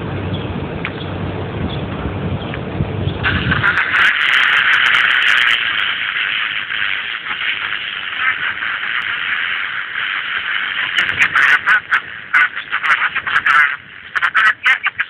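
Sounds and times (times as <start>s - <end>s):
radio static hiss: 3.2s - 15.0s.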